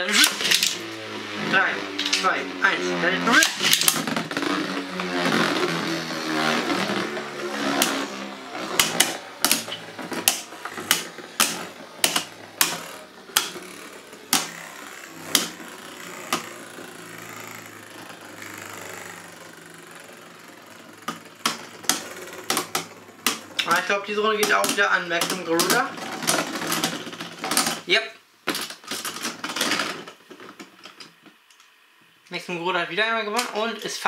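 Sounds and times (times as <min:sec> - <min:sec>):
tops clacking together: 0:00.0 - 0:00.8, 0:03.3 - 0:04.4, 0:08.6 - 0:16.5
spinning tops whirring: 0:00.0 - 0:28.0.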